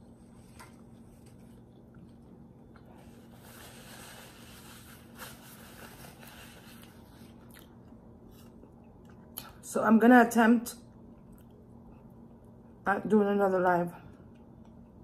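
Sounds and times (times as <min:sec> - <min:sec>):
paper napkin crinkling: 0:02.9 - 0:07.4.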